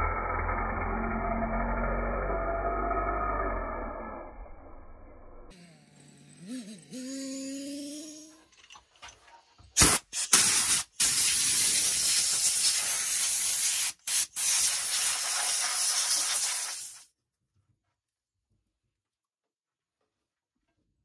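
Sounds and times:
compressed air hissing from blow gun: 9.8s - 17.1s.

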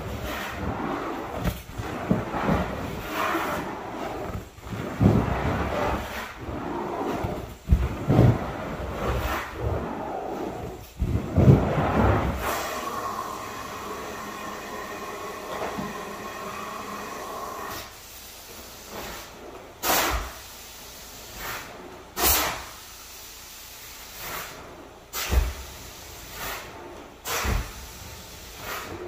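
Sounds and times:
rug cleaning equipment hissing: 12.4s - 19.0s.

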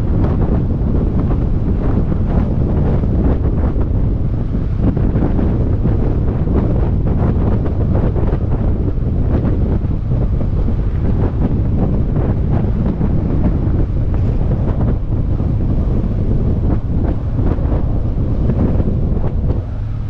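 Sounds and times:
motorcycle running: 0.0s - 20.0s
wind buffeting microphone: 0.0s - 20.0s.

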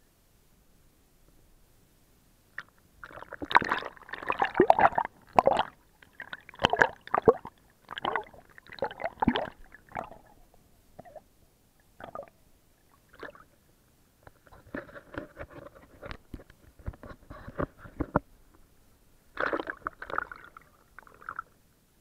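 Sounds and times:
water gurgling and sloshing: 2.6s - 13.6s, 19.3s - 21.6s.

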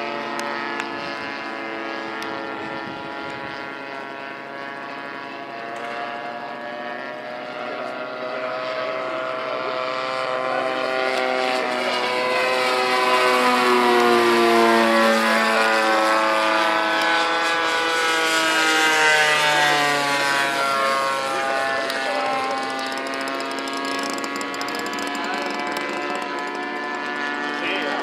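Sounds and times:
model airplane engine flying past: 0.0s - 28.0s.

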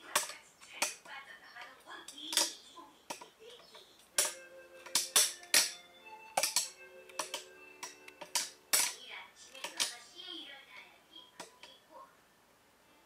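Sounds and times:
light wood-block tune: 4.1s - 9.0s.

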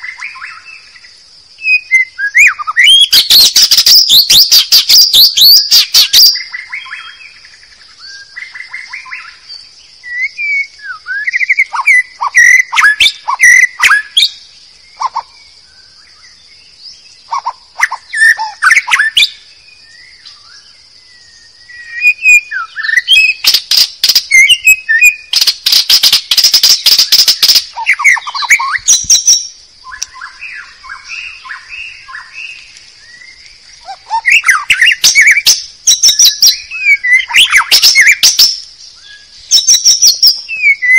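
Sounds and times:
bird singing whistled phrases: 1.6s - 7.4s, 8.0s - 14.4s, 16.9s - 40.9s
bird harsh chattering: 23.0s - 29.5s.

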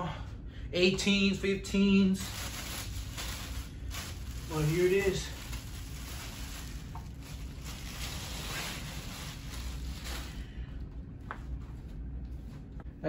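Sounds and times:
steady low hum: 0.0s - 13.0s
plastic bag crinkling: 2.2s - 10.6s.

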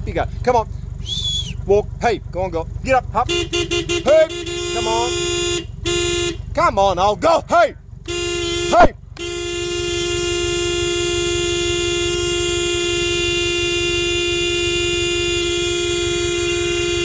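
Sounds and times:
engine running: 0.0s - 17.0s
vehicle horn long blast: 3.2s - 6.6s, 8.0s - 17.0s.

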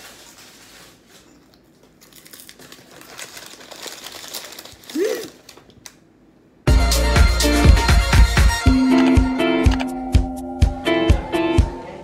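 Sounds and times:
paper wrapping crinkling: 0.0s - 5.9s.

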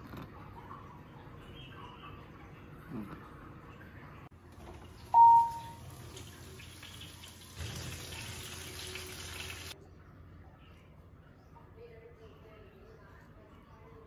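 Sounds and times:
loud short beep: 5.1s - 5.8s
chicken sizzling in roasting pan: 5.8s - 9.8s.

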